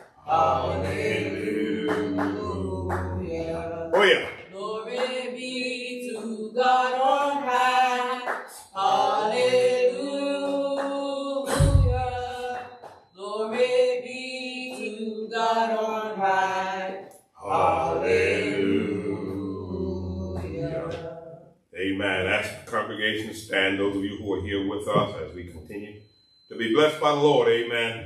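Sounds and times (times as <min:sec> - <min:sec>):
voices singing a hymn: 0:00.0 - 0:22.4, 0:23.0 - 0:25.4
low thump: 0:11.5 - 0:12.2.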